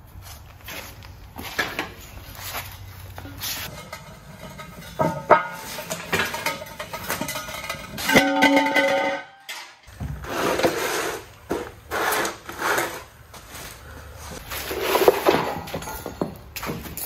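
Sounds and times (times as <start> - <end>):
metal clanks with ringing tone: 3.7 - 9.9.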